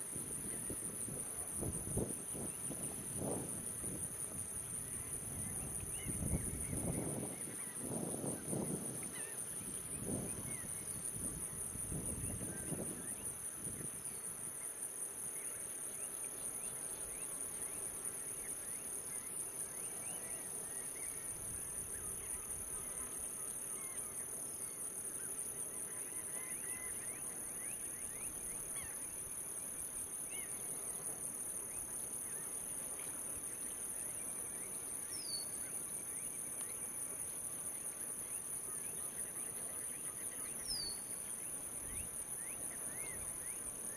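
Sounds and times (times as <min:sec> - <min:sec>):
insect chorus drone: 0:00.0 - 0:43.9
short insect chirps: 0:31.6 - 0:43.9.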